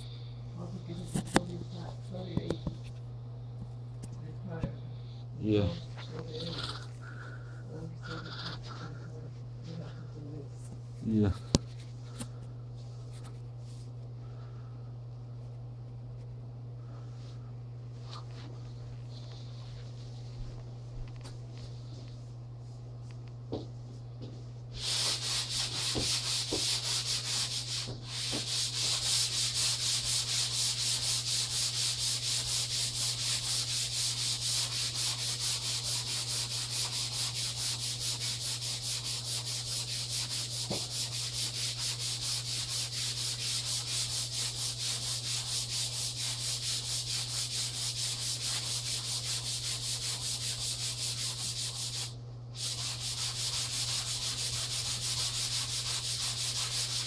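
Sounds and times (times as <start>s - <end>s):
sanding block scratching wall: 24.8s - 57.0s.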